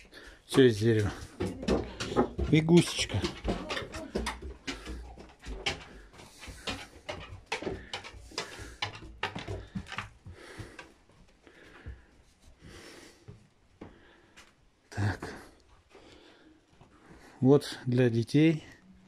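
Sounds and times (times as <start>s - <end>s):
footsteps on wooden stairs: 0.0s - 14.6s.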